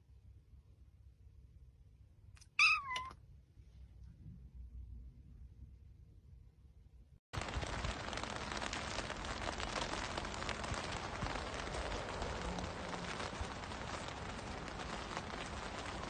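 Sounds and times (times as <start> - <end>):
rain on wet paving: 7.3 - 16.0.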